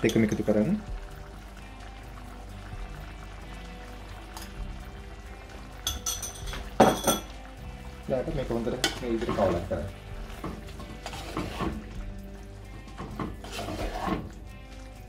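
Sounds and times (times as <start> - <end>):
wooden spoon stirring in clay pot: 10.3 - 12.1, 12.7 - 14.4.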